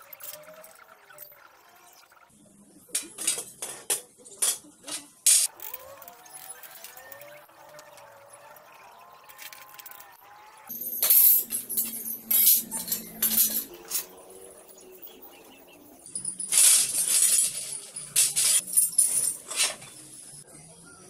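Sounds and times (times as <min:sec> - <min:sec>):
cast iron parts clanking on tile: 0:02.9 - 0:08.1, 0:09.2 - 0:14.8, 0:16.0 - 0:20.1.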